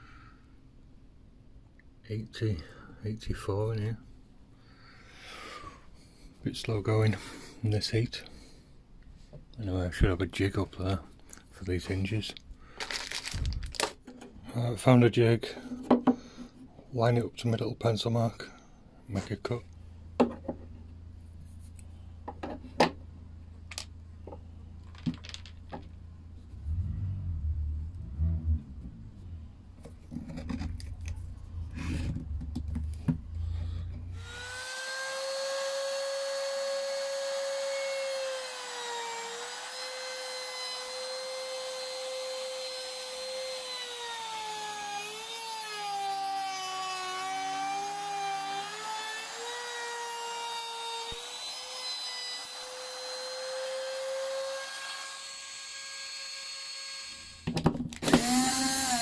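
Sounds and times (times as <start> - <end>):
router whining: 29.9 - 59.0.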